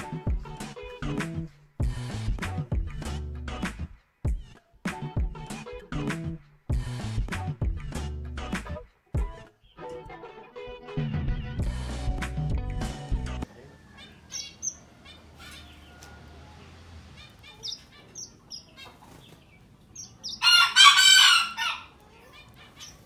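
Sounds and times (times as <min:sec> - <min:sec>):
background music: 0:00.0 - 0:13.5
loud harsh bird call: 0:13.5 - 0:16.2, 0:17.1 - 0:19.3, 0:20.0 - 0:21.9
finches chirping: 0:14.0 - 0:15.8, 0:17.2 - 0:20.4.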